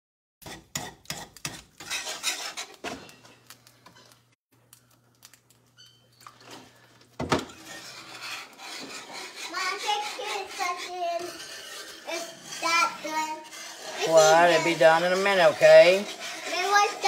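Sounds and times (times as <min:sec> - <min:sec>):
wire whisk scraping a skillet: 0:00.4 - 0:04.2, 0:07.5 - 0:17.0.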